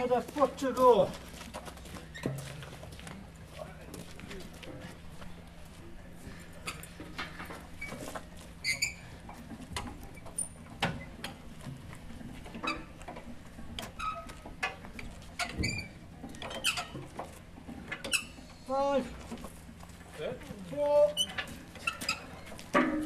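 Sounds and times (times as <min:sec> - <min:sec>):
short squeaks: 0:07.8 - 0:09.2, 0:15.4 - 0:17.0, 0:18.0 - 0:18.6, 0:21.1 - 0:22.5.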